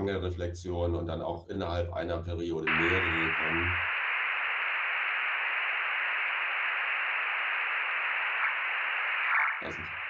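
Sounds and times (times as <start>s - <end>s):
radio receiver hiss: 2.6s - 10.0s
burst of data tones: 2.7s - 10.0s.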